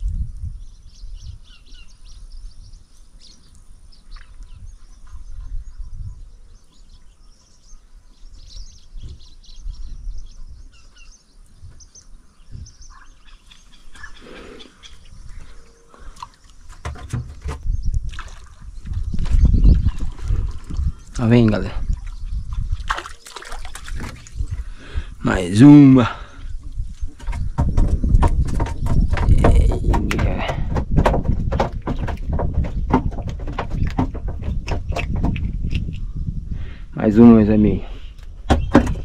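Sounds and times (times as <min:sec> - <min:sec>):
bird chirps and calls: 0:00.6 - 0:16.8
dull knocks: 0:16.7 - 0:17.8, 0:26.6 - 0:35.8, 0:38.4 - 0:39.0.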